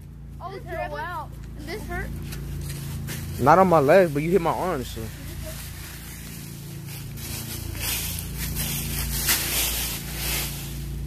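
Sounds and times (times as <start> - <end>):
dry leaves rustling and crunching: 0.0 - 11.0.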